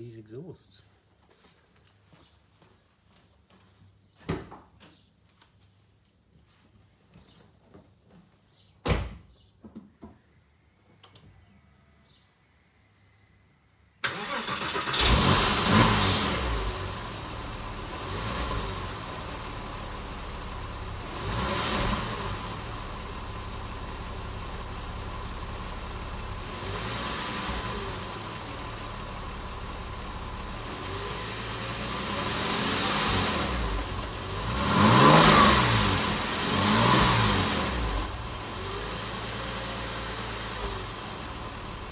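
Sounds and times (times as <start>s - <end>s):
car engine starting and revving: 14.0s - 41.9s.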